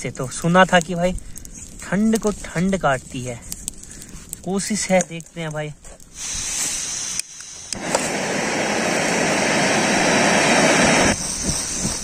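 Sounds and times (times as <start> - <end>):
burner flame rushing: 5.8 - 12.0
gas hissing: 6.0 - 12.0.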